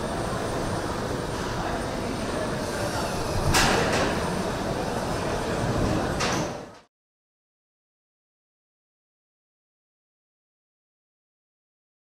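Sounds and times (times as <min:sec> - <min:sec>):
factory machinery din: 0:00.0 - 0:06.8.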